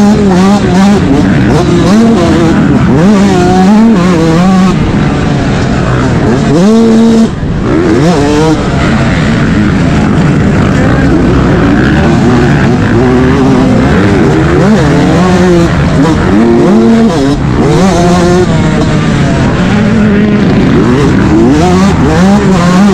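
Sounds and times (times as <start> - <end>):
two-stroke motocross engine revving: 0.0 - 22.9.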